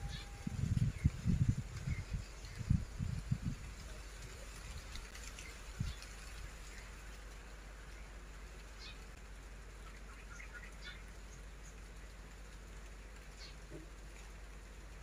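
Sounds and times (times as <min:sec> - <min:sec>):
steady outdoor hiss: 0:00.0 - 0:15.0
bird chirps: 0:09.8 - 0:11.8.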